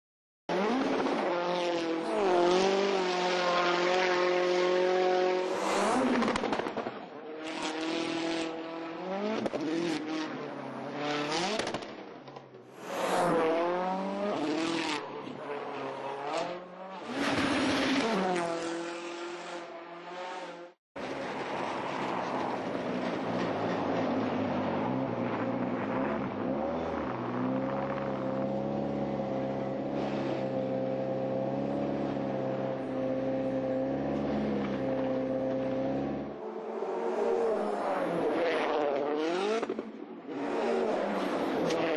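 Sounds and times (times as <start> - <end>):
rally car engine revving: 0.5 - 11.9, 22.1 - 41.9.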